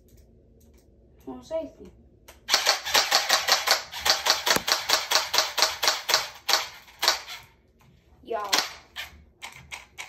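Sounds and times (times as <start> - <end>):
toy gun firing full auto: 2.5 - 7.4.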